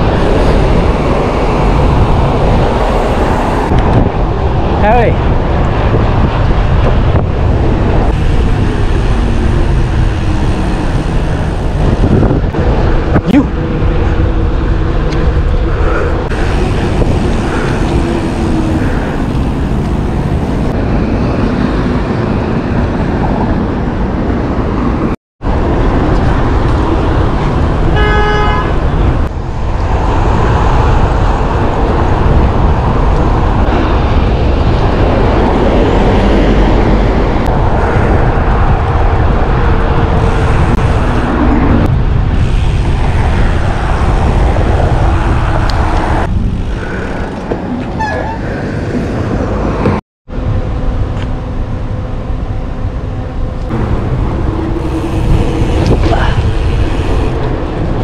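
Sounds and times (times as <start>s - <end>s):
traffic noise: 0.0s - 58.0s
wind noise: 0.0s - 58.0s
vehicle horn: 27.9s - 28.9s.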